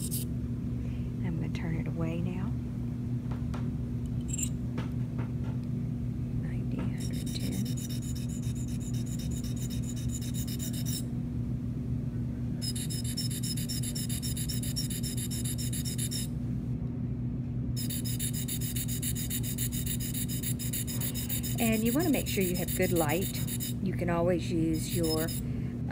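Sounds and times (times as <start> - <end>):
steel blade scraping sharpening stone: 7.0 - 11.0.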